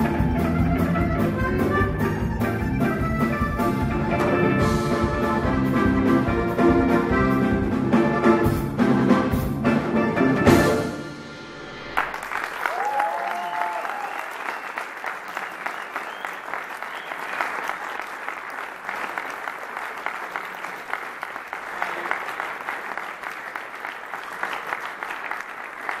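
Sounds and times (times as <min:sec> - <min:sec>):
audience applauding: 0:11.8 - 0:26.0.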